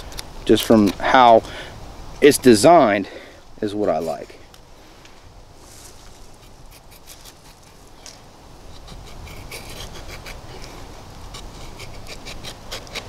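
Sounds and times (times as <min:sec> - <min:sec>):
knife shaving wood: 0:05.8 - 0:13.0.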